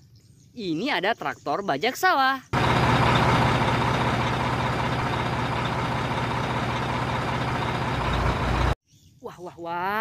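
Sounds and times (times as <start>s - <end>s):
tractor engine running: 2.6s - 8.8s.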